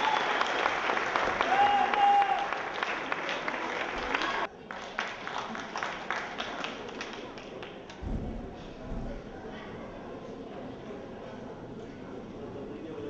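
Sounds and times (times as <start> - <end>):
audience applause: 0.0 - 8.0
faint crowd voices: 0.0 - 13.0
low thud: 8.0 - 9.3.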